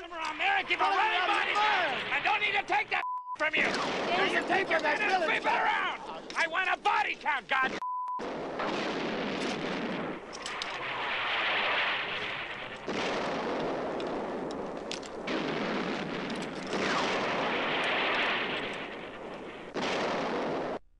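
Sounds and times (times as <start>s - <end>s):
rumbling explosions: 0.0s - 6.4s, 7.5s - 20.9s
gunshot cracks: 8.2s - 20.8s.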